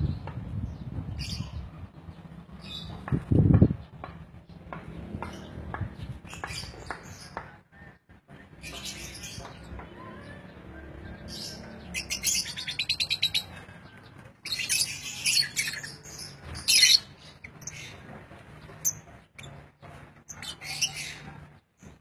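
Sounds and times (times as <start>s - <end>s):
lovebirds chirping: 8.6s - 22.0s.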